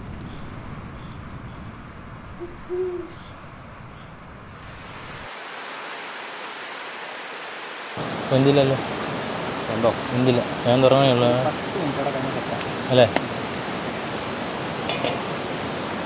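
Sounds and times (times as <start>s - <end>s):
rain hiss: 0.0s - 16.0s
rushing river water: 4.6s - 16.0s.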